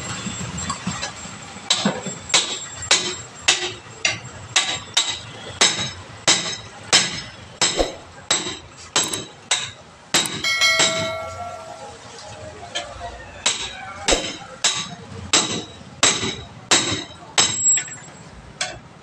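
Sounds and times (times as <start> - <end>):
hammer striking steel bar: 10.2 - 11.8.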